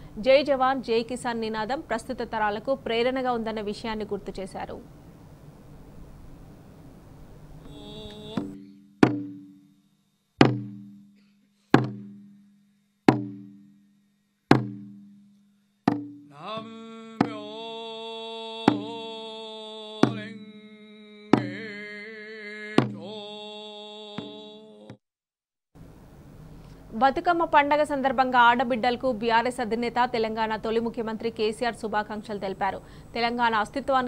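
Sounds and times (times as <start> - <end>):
person singing long held notes: 7.6 - 8.7, 16.3 - 25.0
slow drum strokes: 7.6 - 9.7, 10.4 - 13.8, 14.5 - 17.6, 18.6 - 19.1, 20.0 - 20.6, 21.3 - 21.8, 22.8 - 23.1.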